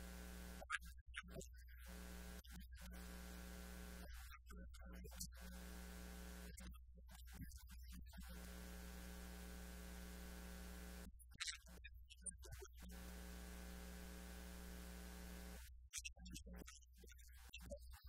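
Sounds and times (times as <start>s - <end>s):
electrical mains hum: 0.0s - 0.7s, 1.9s - 4.2s, 5.4s - 6.6s, 8.2s - 11.1s, 12.9s - 15.6s.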